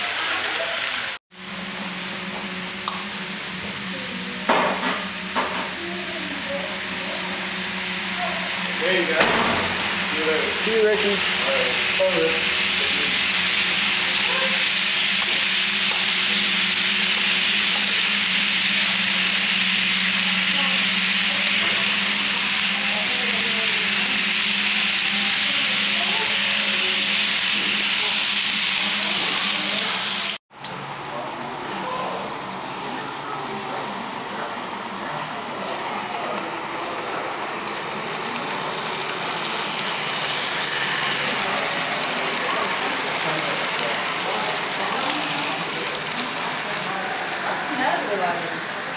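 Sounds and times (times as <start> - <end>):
model train wheels rolling: 0.0 - 1.2, 8.2 - 30.4, 35.2 - 48.9.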